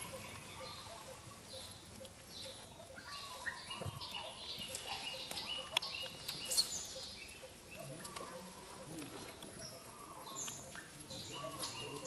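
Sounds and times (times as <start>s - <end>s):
high animal chirps and squeaks: 0.0s - 7.2s.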